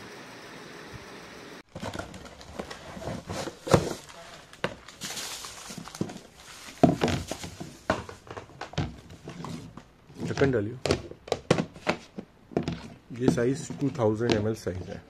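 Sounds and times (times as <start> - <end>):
plastic wrapper crinkling: 1.7 - 7.9
plastic containers clicking and knocking: 6.8 - 9.4, 10.2 - 15.0.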